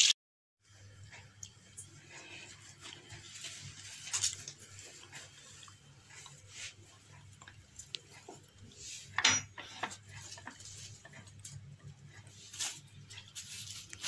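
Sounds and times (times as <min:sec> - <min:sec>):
cutlery clinking on dish and board: 0:09.2 - 0:10.6.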